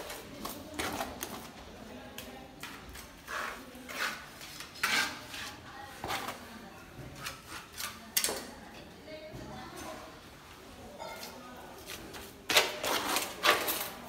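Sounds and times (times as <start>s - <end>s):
trowel scraping mortar in metal pan: 2.7s - 6.4s, 12.5s - 14.0s.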